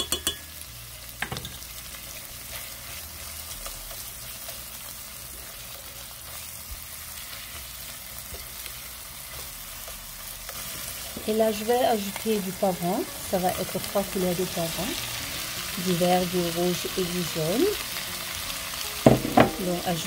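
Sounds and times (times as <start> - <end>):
spoon stirring in a pan: 0.0 - 0.6
onions sizzling in oil: 0.0 - 20.0.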